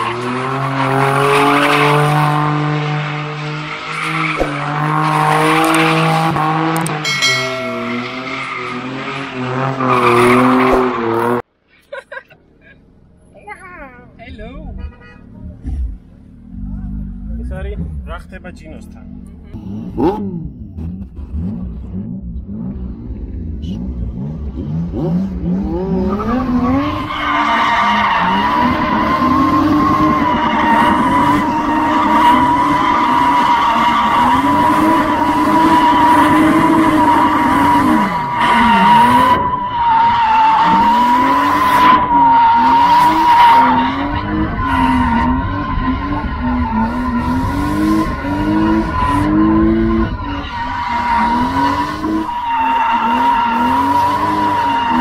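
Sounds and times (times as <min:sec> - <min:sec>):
car engine revving: 0:00.0 - 0:11.5, 0:15.4 - 0:55.0
tyres squealing: 0:26.7 - 0:47.2.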